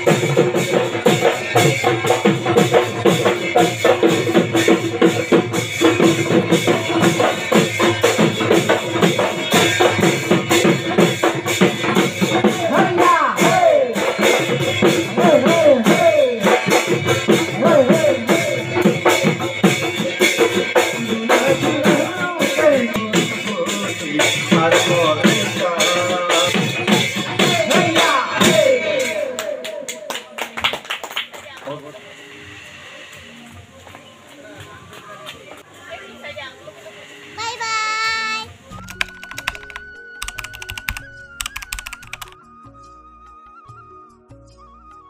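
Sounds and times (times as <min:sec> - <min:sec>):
hand drums fast beat: 0:00.0 - 0:29.1, 0:38.8 - 0:42.4
wavering melody: 0:38.6 - 0:43.6.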